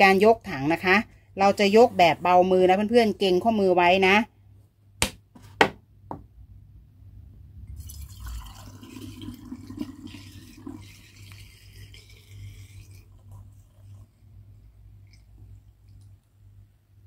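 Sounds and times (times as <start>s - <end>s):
liquid pouring into bottle: 7.7s - 16.2s.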